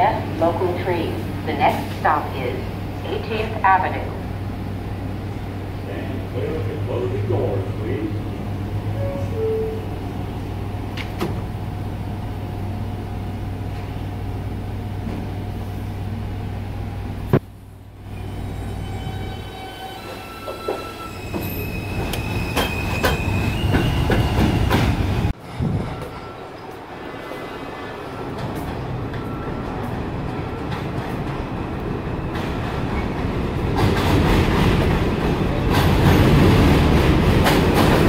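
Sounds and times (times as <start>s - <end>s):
train wheel noise: 18.8s - 38.0s.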